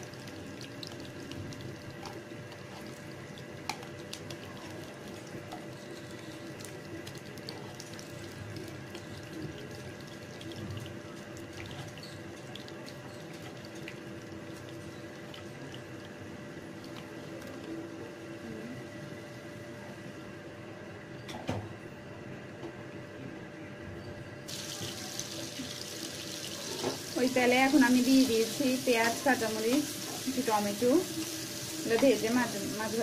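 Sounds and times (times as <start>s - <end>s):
fish frying in hot oil: 0.0s - 17.4s, 24.5s - 33.0s.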